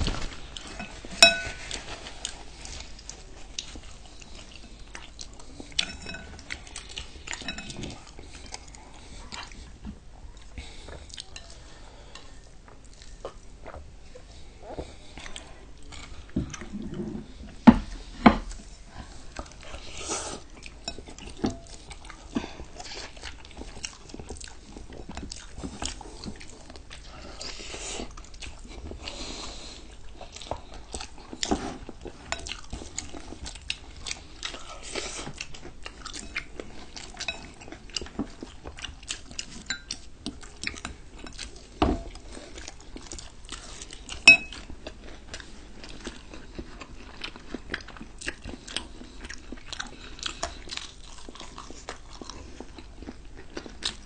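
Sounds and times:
chewing crunchy food: 0:00.0 - 0:54.0
utensils clinking on plates: 0:00.6 - 0:02.0, 0:05.8 - 0:06.5, 0:07.3 - 0:08.0, 0:44.2 - 0:44.6.

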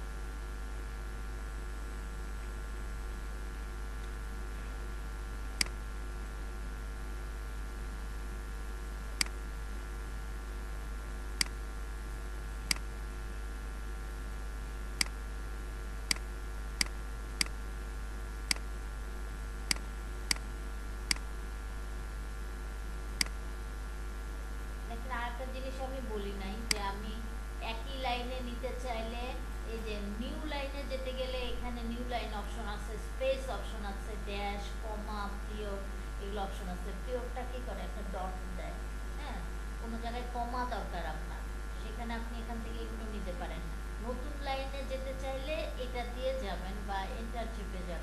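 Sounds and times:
electrical hum and hiss: 0:00.0 - 0:48.0
computer mouse clicks: 0:16.1 - 0:17.6, 0:19.7 - 0:20.5.

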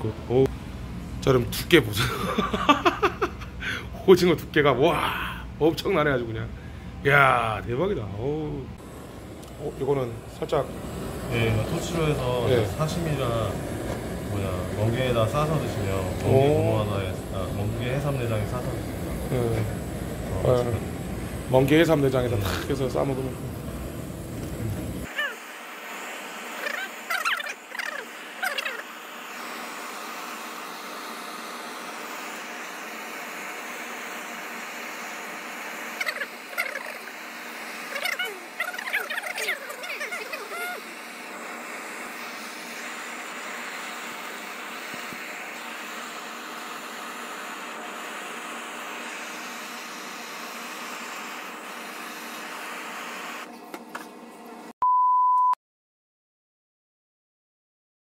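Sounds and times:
gas blowtorch hissing: 0:01.5 - 0:04.0, 0:08.8 - 0:54.0
single-tone beep: 0:54.8 - 0:55.6.

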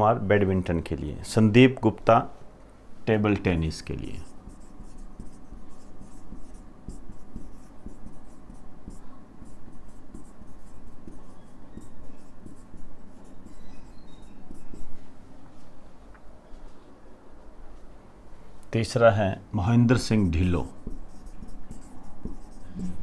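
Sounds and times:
marker writing on whiteboard: 0:04.0 - 0:15.1, 0:20.4 - 0:23.0
faint marker squeaks: 0:08.9 - 0:15.0.

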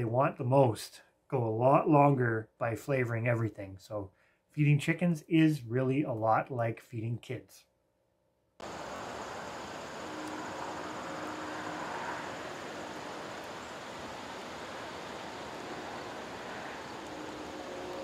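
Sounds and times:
steady rushing noise: 0:08.6 - 0:18.0.

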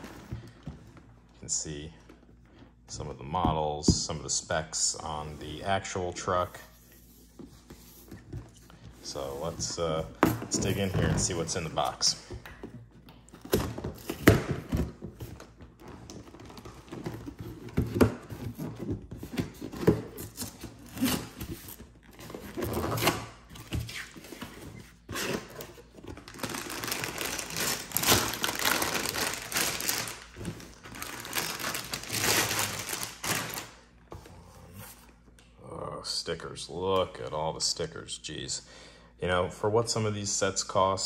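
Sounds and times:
plastic bags crinkling: 0:26.1 - 0:33.8.

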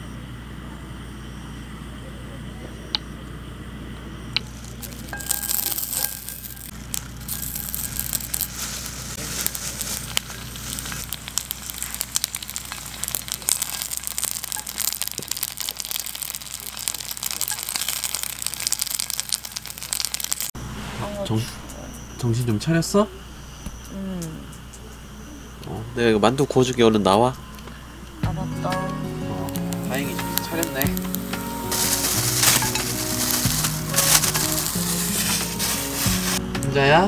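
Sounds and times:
dumplings sizzling in a pan: 0:04.4 - 0:20.6, 0:29.4 - 0:36.4.

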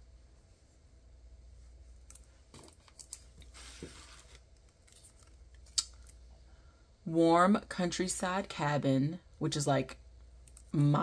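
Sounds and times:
soft rustle: 0:00.4 - 0:05.4.

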